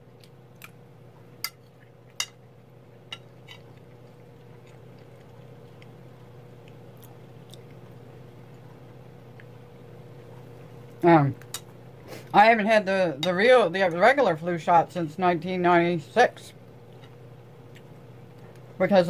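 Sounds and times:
low hum: 0.0 - 19.0
person chewing: 0.1 - 12.3, 16.8 - 18.7.

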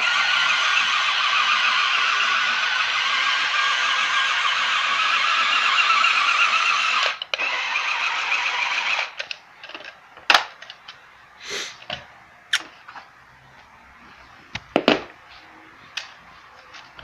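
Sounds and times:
toy car electric motors whirring: 0.0 - 10.0.

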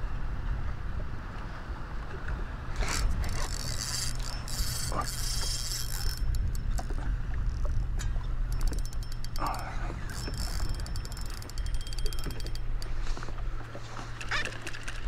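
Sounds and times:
fishing reel whirring and ratcheting: 2.7 - 13.3, 14.1 - 15.0
scattered clicks: 8.0 - 12.9.

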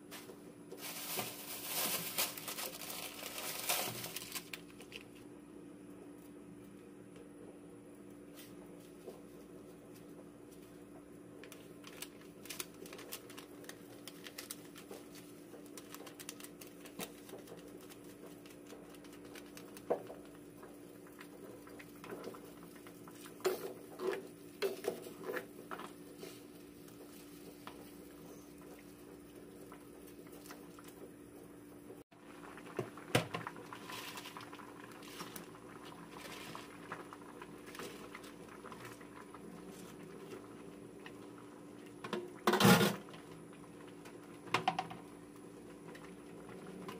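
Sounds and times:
soup bubbling in a pot: 17.2 - 46.9.

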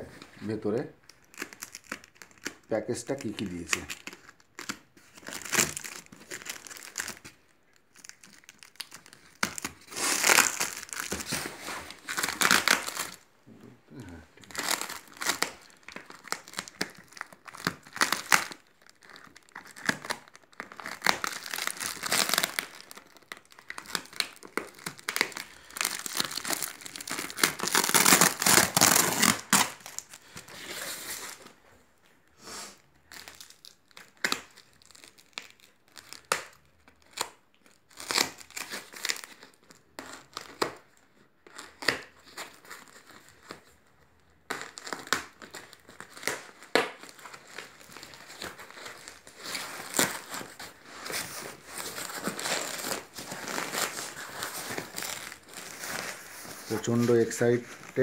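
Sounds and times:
tape and foam tearing: 3.5 - 7.3, 8.1 - 13.2, 14.0 - 31.4, 44.5 - 58.0.

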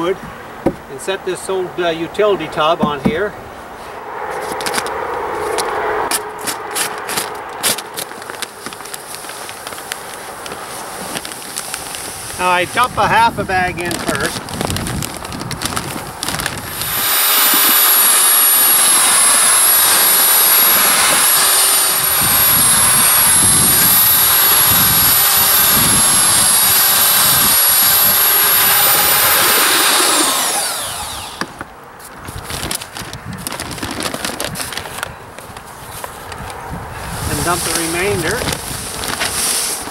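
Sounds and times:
electric drill mixer running: 16.2 - 31.6.

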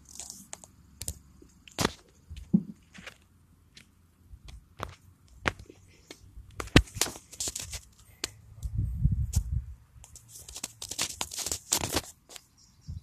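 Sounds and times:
rustling and crackling from handling: 4.5 - 12.5.

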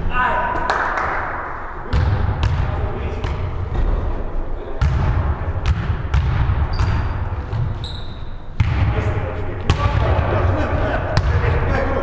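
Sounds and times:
sneaker squeak: 6.6 - 8.6.

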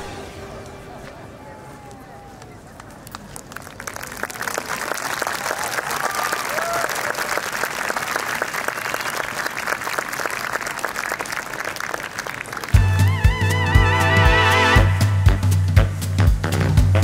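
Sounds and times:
people cheering: 0.0 - 13.2
audience applauding: 1.8 - 13.4.

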